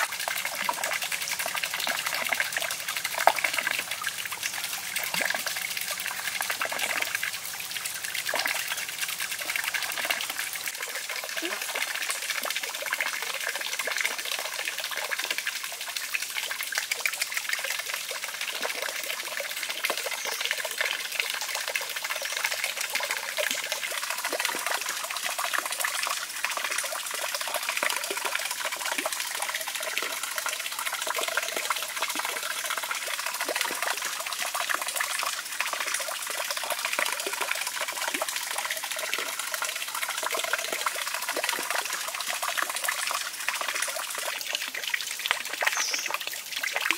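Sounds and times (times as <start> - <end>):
water trickling and splashing: 0.0 - 46.9.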